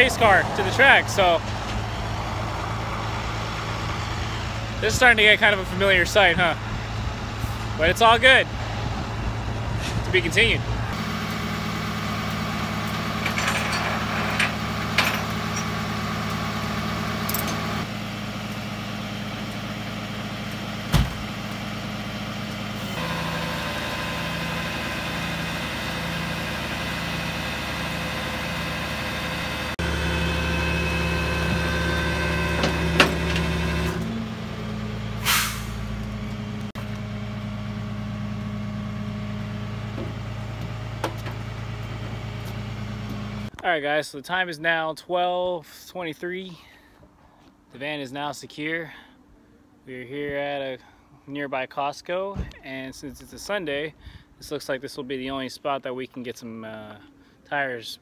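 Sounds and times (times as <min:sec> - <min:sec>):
vehicle engine idling: 0:00.0 - 0:43.5
short hiss: 0:35.2 - 0:35.8.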